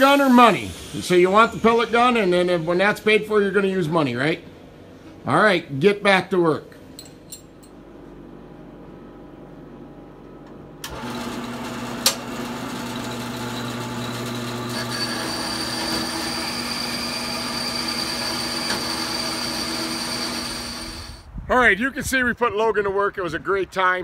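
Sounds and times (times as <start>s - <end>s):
band saw humming: 0.0s - 4.1s, 10.9s - 21.2s
high whine: 0.0s - 4.6s.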